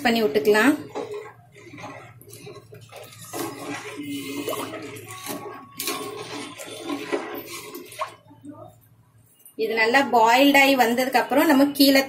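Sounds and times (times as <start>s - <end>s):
ladle stirring and splashing: 0.0s - 9.1s
water boiling and bubbling: 0.0s - 12.0s.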